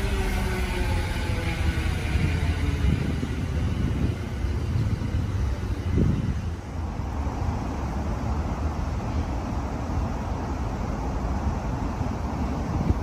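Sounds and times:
faint falling motor whine: 0.0s - 5.3s
train wheels rumbling on rail: 0.0s - 13.0s.

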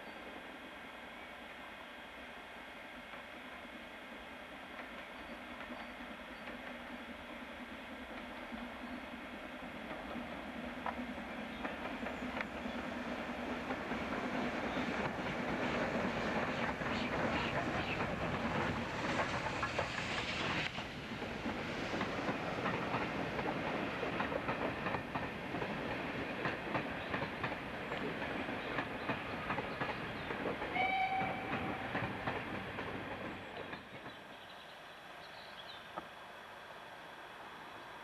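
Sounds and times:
train wheels clattering: 9.8s - 34.4s.

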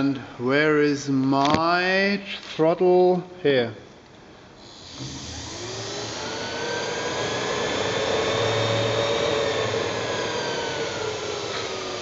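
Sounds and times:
electric motor whine: 4.6s - 12.0s.

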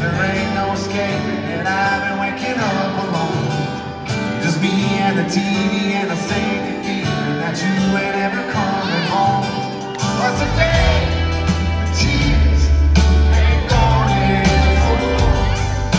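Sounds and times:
acoustic guitar strumming: 0.0s - 15.9s
electric guitar: 0.0s - 15.9s
man singing: 0.0s - 15.9s.

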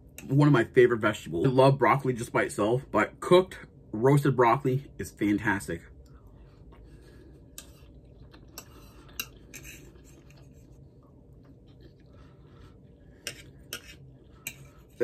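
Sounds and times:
food being chewed: 6.0s - 15.0s
fork scraping and tapping on plate: 13.2s - 14.8s.

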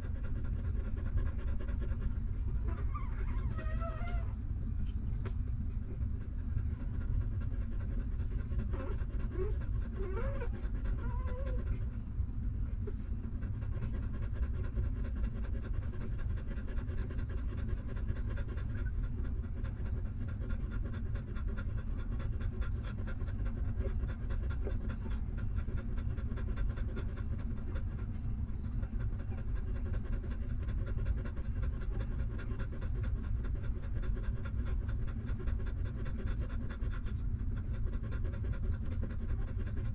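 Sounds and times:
dog panting rapidly: 0.0s - 39.9s
puppies squeaking: 2.6s - 4.4s.

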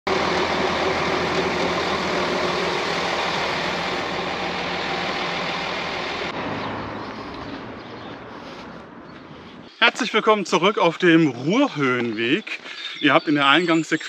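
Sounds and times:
broad rushing noise: 0.1s - 7.7s
vehicle engine droning: 0.1s - 9.5s.

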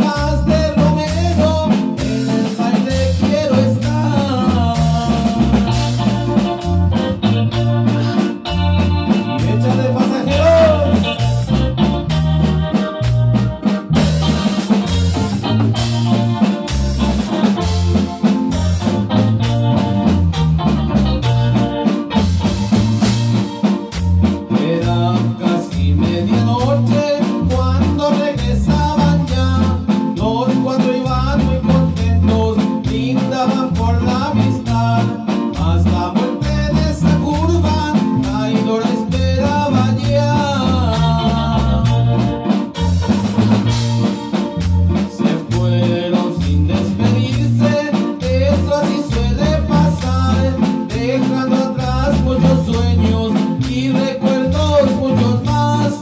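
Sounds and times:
drum kit beat: 0.0s - 56.0s
guitar: 0.0s - 56.0s
wavering lead melody: 3.9s - 24.5s.

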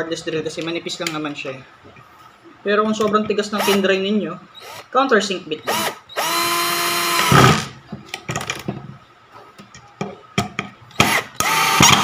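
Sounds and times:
cordless drill motor: 3.6s - 3.8s, 4.6s - 4.9s, 5.7s - 7.7s, 11.0s - 12.0s.

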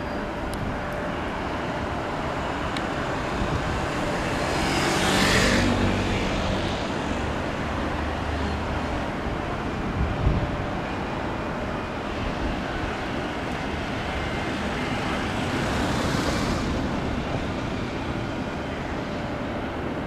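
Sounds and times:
road traffic rumble: 0.0s - 20.0s
vehicle passing close by: 4.2s - 7.4s.

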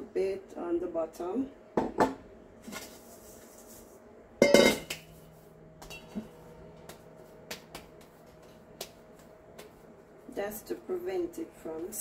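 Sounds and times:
metal bowl clang: 4.4s - 4.9s, 5.8s - 6.2s.

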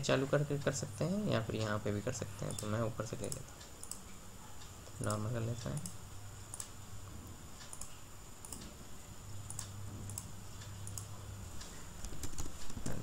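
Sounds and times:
low electrical hum: 0.0s - 13.0s
computer mouse clicks: 2.5s - 6.8s, 7.6s - 8.8s, 9.4s - 13.0s.

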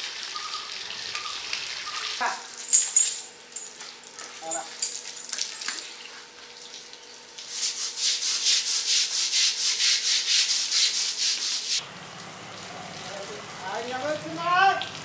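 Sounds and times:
rhythmic scrubbing of wet hide: 6.4s - 11.8s.

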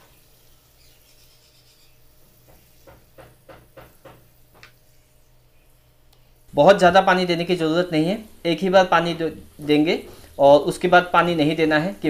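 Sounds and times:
short rubbing strokes: 0.0s - 3.3s
pressure sprayer watering soil: 0.0s - 5.1s, 6.5s - 12.0s.

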